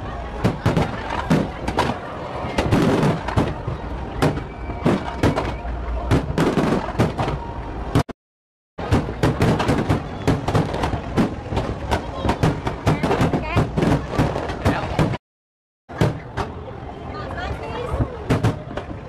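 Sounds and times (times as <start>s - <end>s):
fireworks bangs and crackles: 0.3s - 8.1s, 8.8s - 15.2s, 17.9s - 19.0s.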